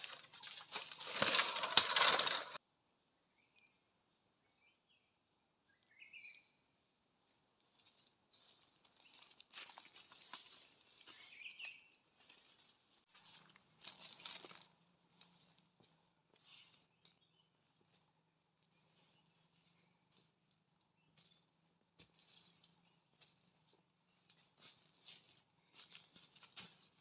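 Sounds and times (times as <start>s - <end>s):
bamboo crackling and rustling: 0.0s - 2.6s, 7.7s - 17.2s, 22.0s - 27.0s
bird chirps: 4.5s - 6.7s, 10.7s - 12.1s.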